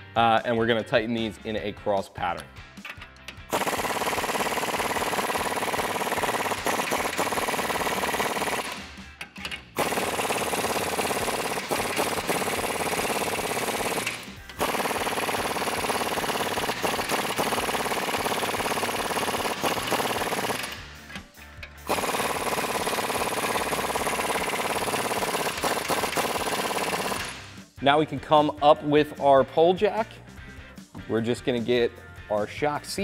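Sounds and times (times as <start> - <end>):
impact wrench hammering: 2.8 - 27.5.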